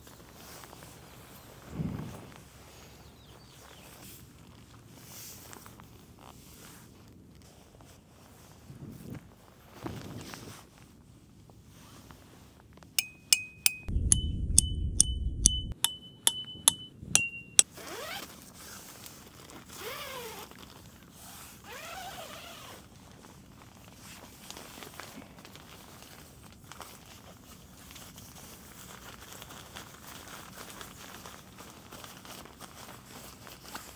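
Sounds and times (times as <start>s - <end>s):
hammer striking metal tent stake: 13.0s - 17.6s
low rumble: 13.9s - 15.8s.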